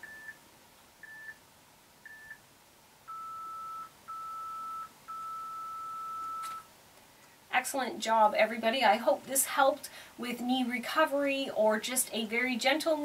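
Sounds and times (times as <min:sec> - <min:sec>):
longer lower timer tones: 0:03.1 - 0:06.6.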